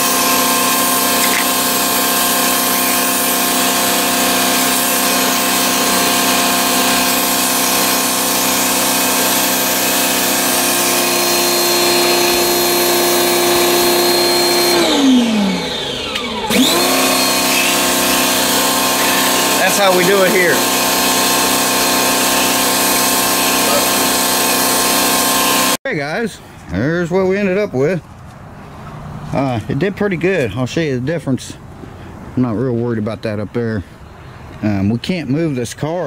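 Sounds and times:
pressure washer motor humming: 0:00.0 - 0:25.8.

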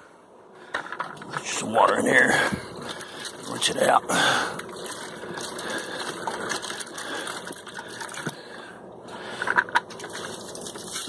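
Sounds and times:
pig crunching feed: 0:02.8 - 0:08.4.

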